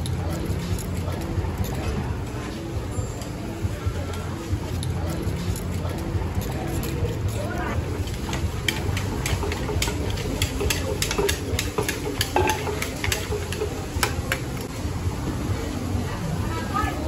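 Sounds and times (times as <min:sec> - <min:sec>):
pestle pounding in wooden mortar: 0:08.0 - 0:14.7.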